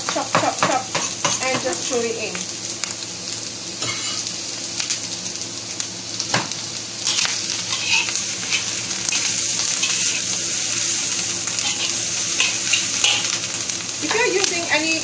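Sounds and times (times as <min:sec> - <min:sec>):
food sizzling in wok: 0:00.0 - 0:15.0
metal spatula scraping pan: 0:07.1 - 0:10.3, 0:11.6 - 0:13.4.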